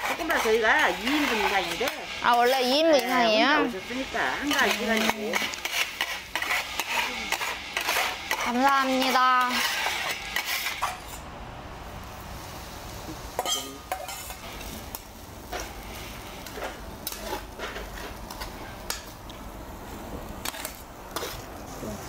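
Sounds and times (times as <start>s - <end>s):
metal spatulas chopping and scraping: 0.0s - 3.3s, 4.4s - 11.2s, 13.4s - 14.4s, 20.4s - 21.4s
faint sizzle: 0.0s - 22.0s.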